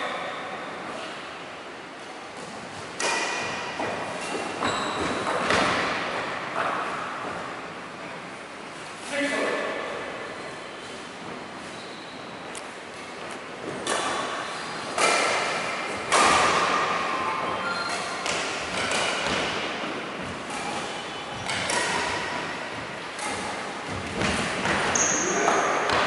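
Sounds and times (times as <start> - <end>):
badminton racket hits: 13.7 - 17.0, 18.0 - 25.0.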